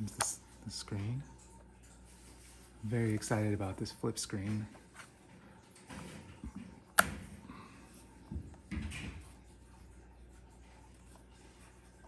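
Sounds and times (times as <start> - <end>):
soft handling rustles: 1.8 - 6.9.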